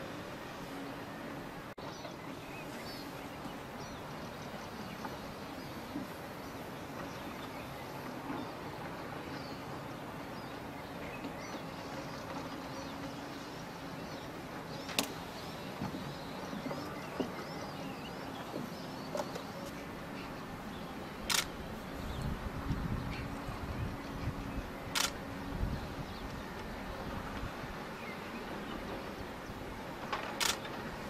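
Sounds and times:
sharp clicks: 21.3 - 21.5, 25.0 - 25.2, 30.2 - 30.8.

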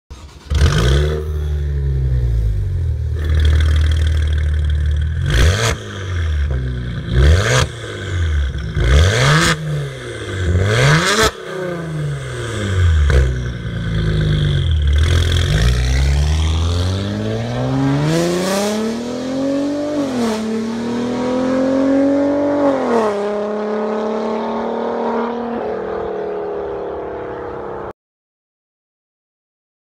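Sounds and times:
car engine revving: 0.1 - 27.9
car accelerating through gears: 15.0 - 27.9.

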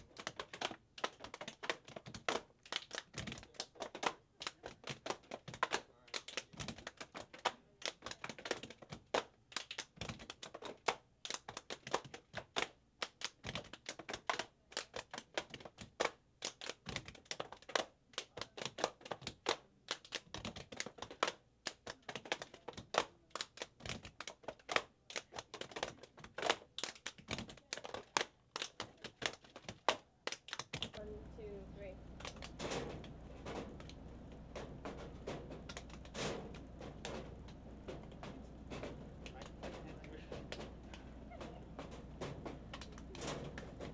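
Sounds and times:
gloved hands clapping: 0.0 - 31.0, 31.8 - 43.9
plastic boxes knocking on bench: 32.2 - 43.9.

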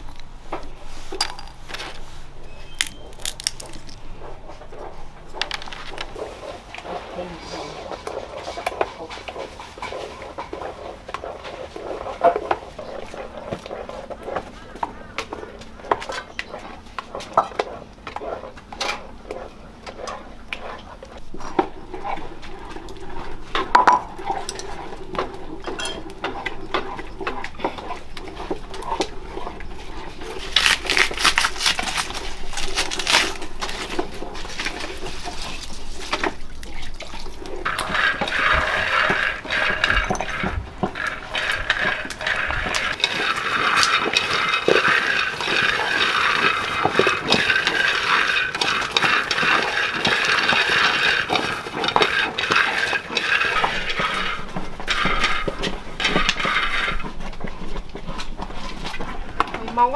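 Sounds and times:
pots and utensils clinking: 5.3 - 59.9
water pouring: 32.1 - 57.1.

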